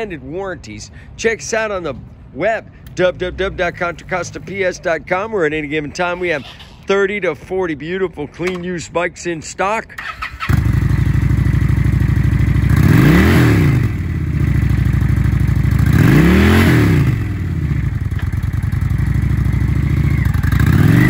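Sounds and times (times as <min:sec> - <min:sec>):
motorcycle engine starting and idling: 0:09.9 - 0:21.0
motorcycle engine revving: 0:10.0 - 0:21.0.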